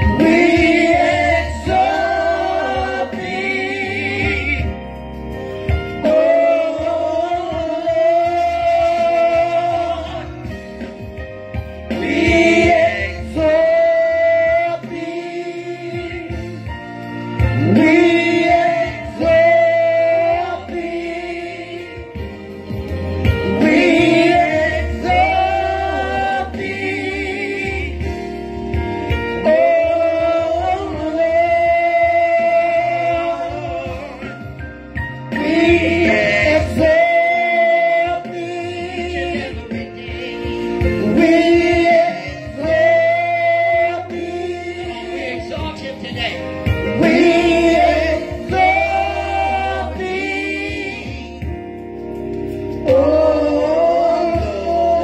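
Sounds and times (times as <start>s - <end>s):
choir voices singing: 0.0s - 5.0s, 5.9s - 10.6s, 11.8s - 28.4s, 29.4s - 34.4s, 35.3s - 55.0s.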